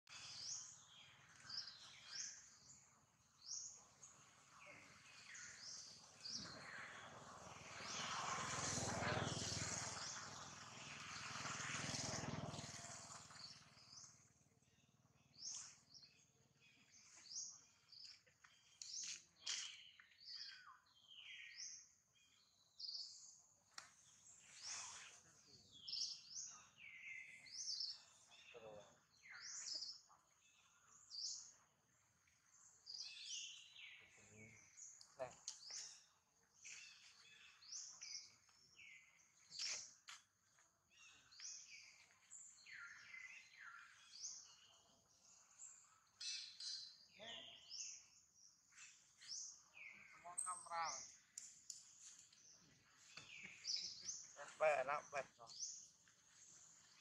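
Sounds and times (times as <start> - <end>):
small birds chirping: 0.0 - 57.0
broad rushing noise: 6.6 - 13.7.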